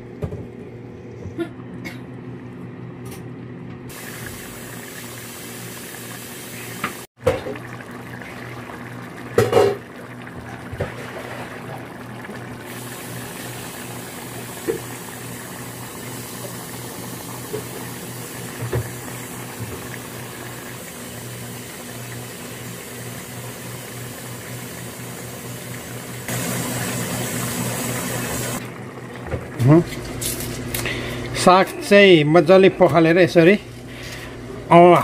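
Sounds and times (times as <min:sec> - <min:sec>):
curry bubbling in a pot: 0:07.2 - 0:18.3.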